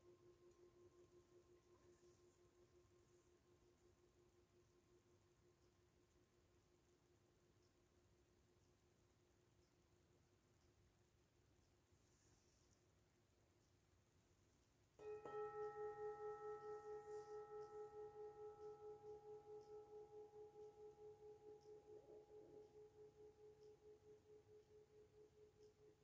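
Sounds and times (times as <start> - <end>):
singing bowl ringing: 15.0 - 26.0.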